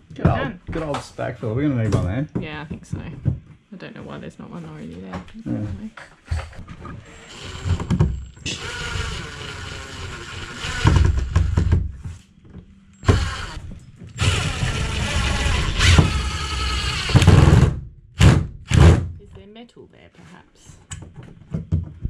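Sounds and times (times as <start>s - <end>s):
cordless drill driving screw: 7.1s - 11.4s, 13.0s - 13.6s, 14.2s - 17.5s.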